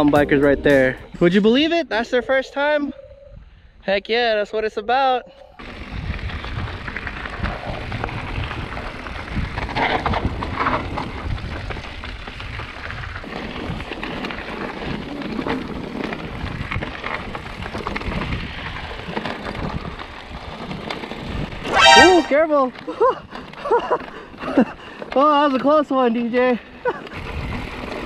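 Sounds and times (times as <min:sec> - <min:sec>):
wind buffeting microphone: 0:05.6 - 0:13.9
bike tyres rolling over gravel: 0:05.6 - 0:21.7, 0:22.4 - 0:28.0.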